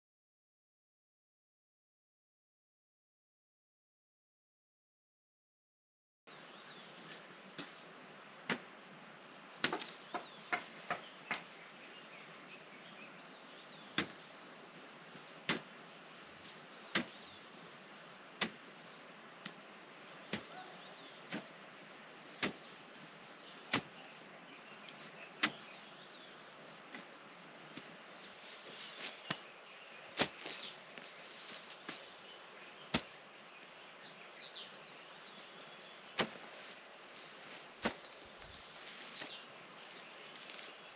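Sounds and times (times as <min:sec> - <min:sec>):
high insect drone: 0:06.3 - 0:40.9
hoe chopping into soil: 0:08.4 - 0:08.7, 0:09.6 - 0:11.5, 0:13.9 - 0:14.2, 0:15.4 - 0:15.7, 0:16.8 - 0:17.4, 0:18.3 - 0:18.7, 0:20.2 - 0:21.6, 0:22.3 - 0:22.8, 0:23.6 - 0:24.0, 0:25.4 - 0:25.7, 0:30.2 - 0:30.7, 0:32.9 - 0:33.2, 0:36.2 - 0:36.5, 0:37.8 - 0:38.2.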